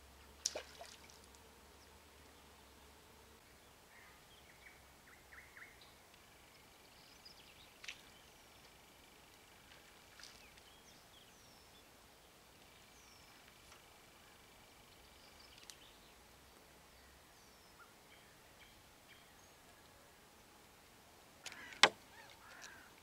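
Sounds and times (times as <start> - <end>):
faint bird chirps: 16.9 - 20.1, 21.5 - 22.9.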